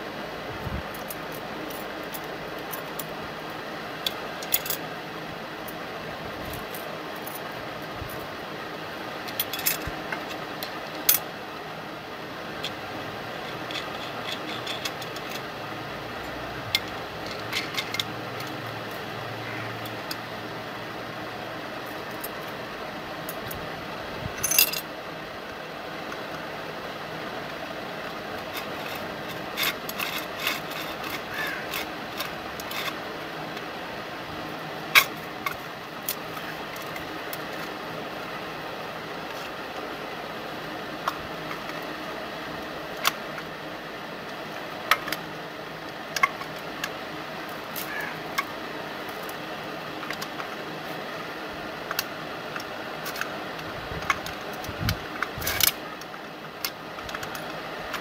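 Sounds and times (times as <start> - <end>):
steady background hum: 0.0 - 58.0
metal nuts and bolts clinking: 4.0 - 4.9, 9.2 - 11.3, 12.6 - 19.1, 24.4 - 24.9, 28.1 - 33.1, 34.9 - 37.8.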